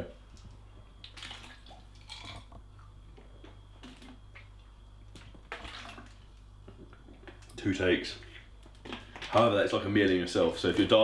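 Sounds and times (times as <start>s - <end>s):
person gulping water: 1.0s - 7.6s.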